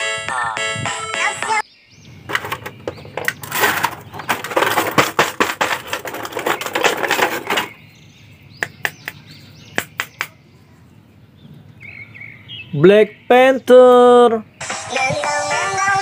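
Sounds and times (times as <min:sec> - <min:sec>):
plastic tray crinkling: 0:02.3 - 0:07.8.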